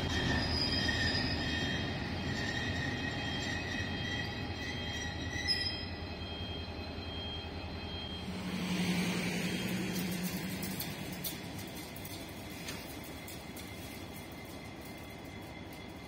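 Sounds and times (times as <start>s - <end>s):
wheels squealing: 0.0s - 6.0s, 8.1s - 16.0s
locomotive low rumble: 7.9s - 16.0s.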